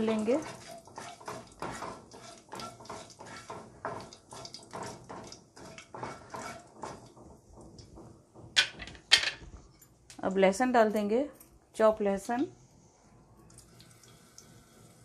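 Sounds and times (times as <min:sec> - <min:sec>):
spatula stirring against pan: 0:00.0 - 0:08.8.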